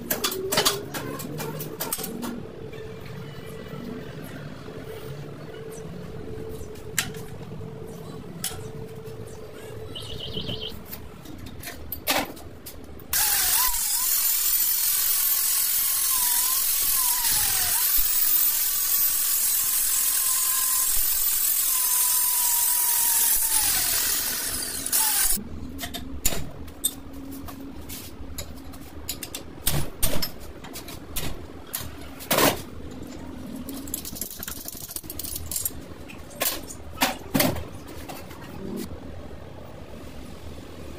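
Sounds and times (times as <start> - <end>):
angle grinder whining: 13.2 - 25.4.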